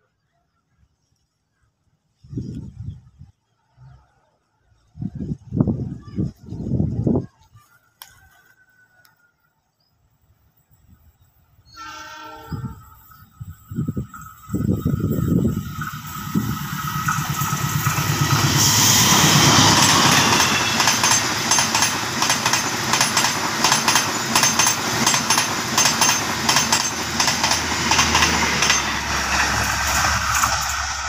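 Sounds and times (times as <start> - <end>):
diesel locomotive engine: 11.9 - 31.0
train coaches rushing past: 13.4 - 31.0
wheels clicking over rail joints: 19.4 - 31.0.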